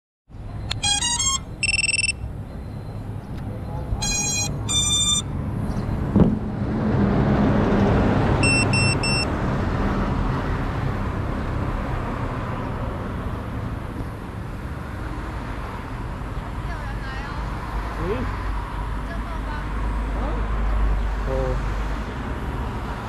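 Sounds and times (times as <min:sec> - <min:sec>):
road traffic noise: 0:00.3 - 0:23.0
short electronic beeps: 0:00.6 - 0:05.4, 0:08.4 - 0:09.3.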